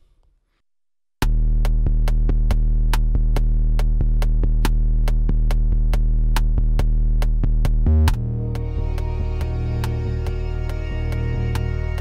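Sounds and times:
deep held bass note: 7.9s - 12.0s.

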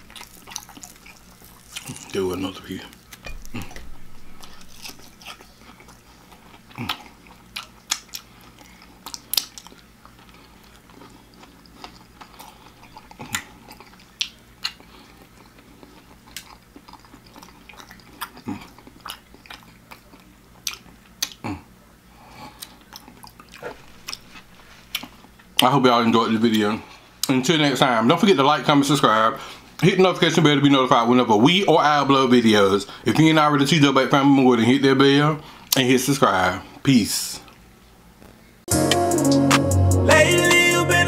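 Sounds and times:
chewing and lip smacking: 0.0s - 2.3s, 2.9s - 25.7s.

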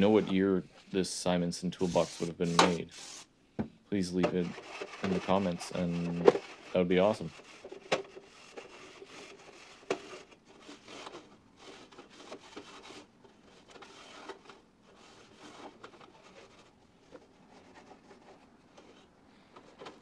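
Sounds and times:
rag rubbing on metal toolbox: 1.8s - 3.3s, 4.3s - 13.0s.

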